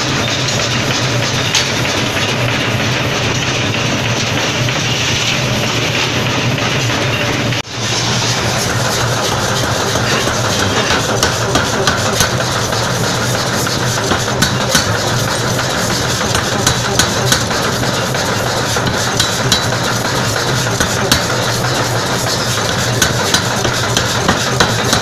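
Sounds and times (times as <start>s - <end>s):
power hammer humming: 7.8s - 25.0s.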